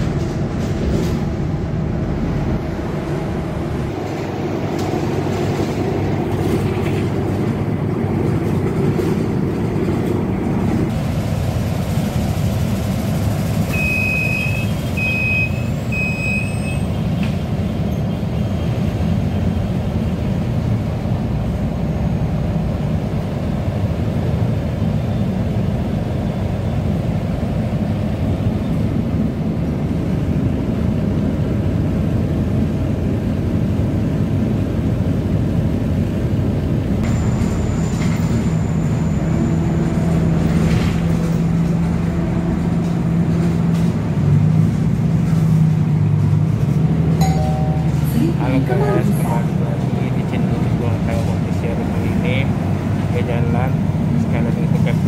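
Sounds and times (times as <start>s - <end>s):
bus engine rumble: 0.0s - 55.0s
short high door warning beeps: 13.7s - 16.8s.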